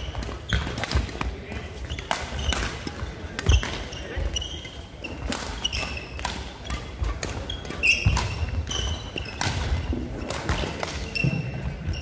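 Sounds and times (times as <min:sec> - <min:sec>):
racket striking shuttlecock: 0:00.1 - 0:01.4, 0:02.0 - 0:03.9, 0:05.2 - 0:11.2
shoes squeaking on wooden floor: 0:03.5 - 0:10.3, 0:11.0 - 0:12.0.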